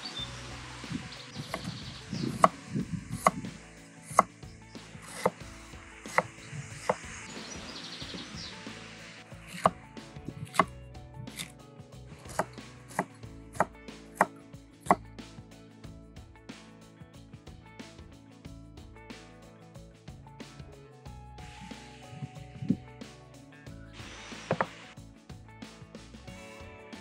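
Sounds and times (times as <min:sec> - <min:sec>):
knife chopping on cutting board: 0:01.5 - 0:03.5, 0:04.1 - 0:04.3, 0:05.0 - 0:05.4, 0:06.1 - 0:07.0, 0:09.5 - 0:09.8, 0:10.4 - 0:11.5, 0:12.2 - 0:15.0, 0:24.4 - 0:24.8.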